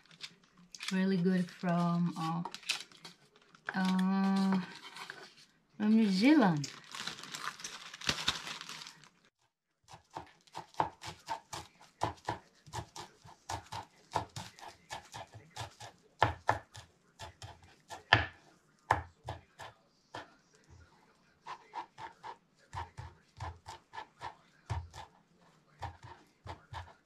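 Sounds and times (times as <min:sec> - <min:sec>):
plastic bag crinkling: 0:01.9 - 0:04.6, 0:06.4 - 0:09.3
knife chopping herbs on board: 0:09.9 - 0:20.3, 0:21.4 - 0:27.0.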